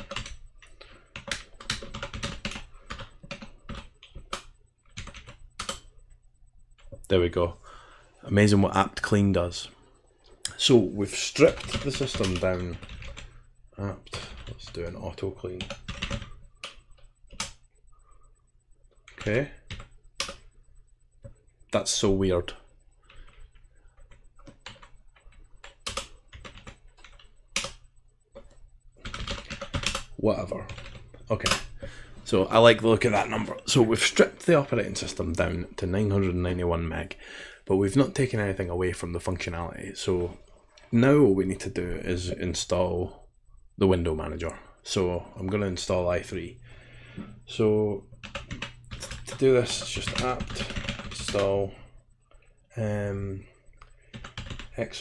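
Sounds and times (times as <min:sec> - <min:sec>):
typing on computer keyboard: 0:00.0 - 0:06.0, 0:11.4 - 0:13.4, 0:14.1 - 0:17.6, 0:19.0 - 0:20.5, 0:23.0 - 0:32.0, 0:48.0 - 0:52.5, 0:53.7 - 0:55.0.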